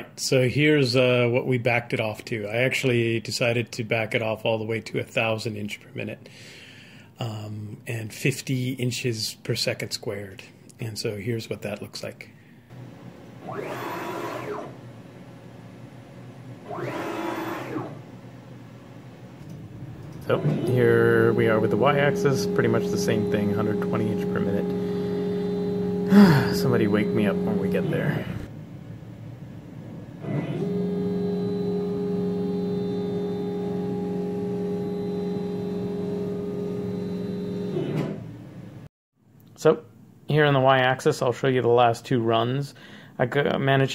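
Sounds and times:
stepper motors whining: 12.8 - 15.2, 16.2 - 28.5, 30.0 - 38.8.

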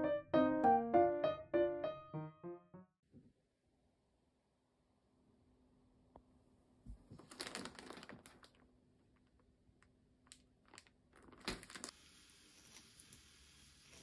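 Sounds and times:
plastic bag crinkling: 7.1 - 8.7, 10.5 - 11.9.

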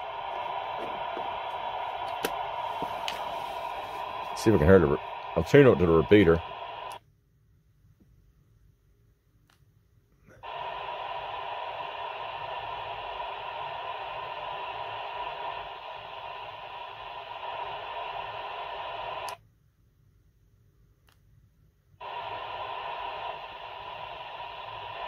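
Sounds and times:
radio static hiss: 0.0 - 7.0, 10.4 - 19.4, 22.0 - 25.0
radio switch click: 0.2 - 4.4.

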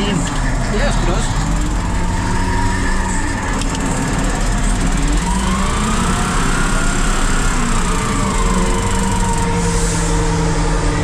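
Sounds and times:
diesel engine running under load: 0.0 - 11.0
rising hydraulic whine: 5.1 - 11.0.

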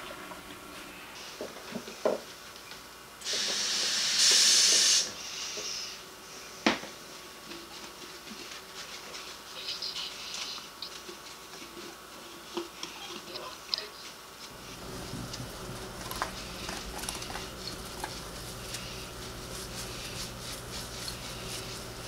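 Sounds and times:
tap running: 14.5 - 22.0.

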